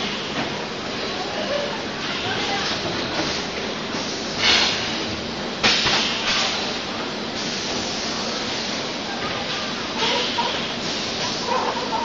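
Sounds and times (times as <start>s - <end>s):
compressed air hissing: 7.4s - 8.8s.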